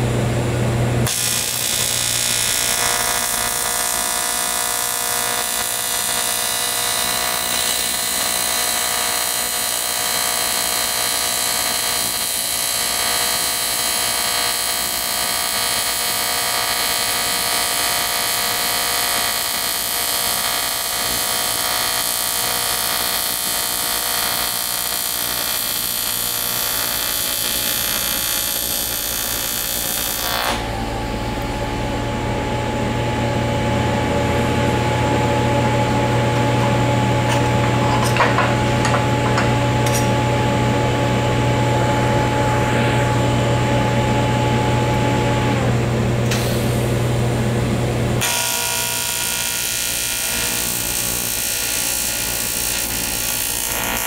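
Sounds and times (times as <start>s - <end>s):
welding arc buzzing: 1.0s - 32.0s, 33.9s - 54.0s
low steady hum: 29.8s - 48.2s.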